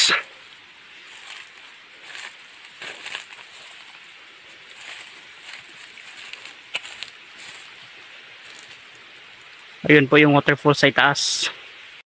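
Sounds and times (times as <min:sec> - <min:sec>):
rustling: 0:01.0 - 0:09.6.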